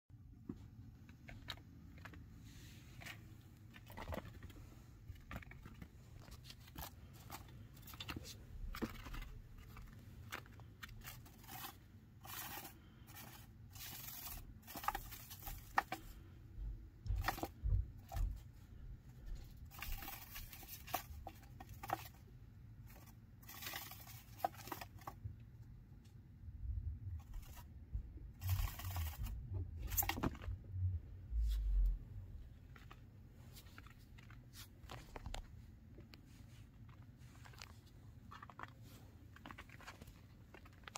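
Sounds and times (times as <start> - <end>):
scratchy scrapes and rustles: 0.4 - 25.4, 27.1 - 40.9
soft low thumps: 16.4 - 19.7, 26.5 - 28.4.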